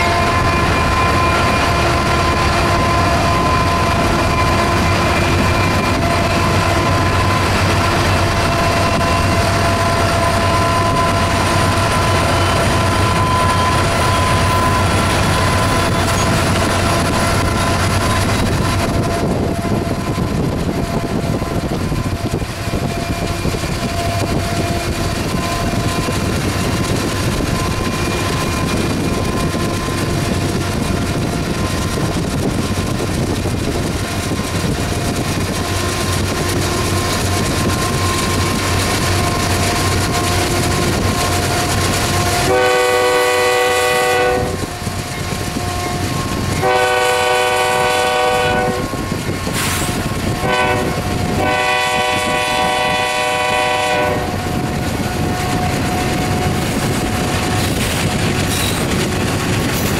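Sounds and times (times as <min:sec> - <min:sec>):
freight train rumbling past: 0:00.0 - 0:59.9
locomotive air horn: 0:39.1 - 0:56.5.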